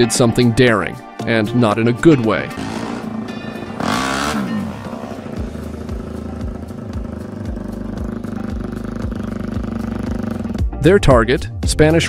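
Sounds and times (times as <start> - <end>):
motorcycle engine revving: 1.9 - 10.8.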